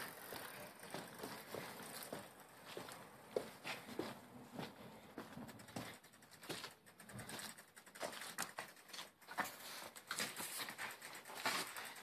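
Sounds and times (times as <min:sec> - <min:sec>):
bicycle hub ticking: 0:00.0 - 0:12.0
bicycle rattling while wheeled: 0:00.0 - 0:12.0
footsteps: 0:00.0 - 0:12.0
loose gear knocking: 0:05.4 - 0:12.0.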